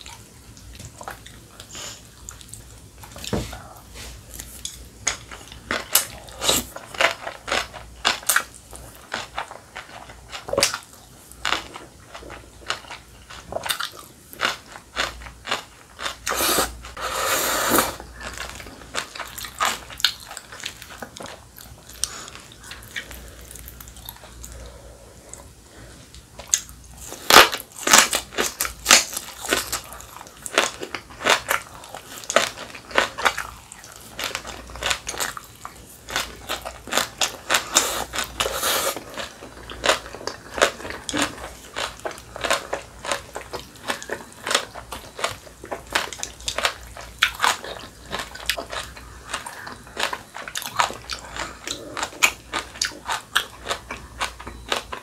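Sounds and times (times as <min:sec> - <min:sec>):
chewing and crunching: 0:00.0 - 0:17.0, 0:17.9 - 0:55.0
slurping noodles: 0:16.3 - 0:18.0, 0:37.6 - 0:39.1.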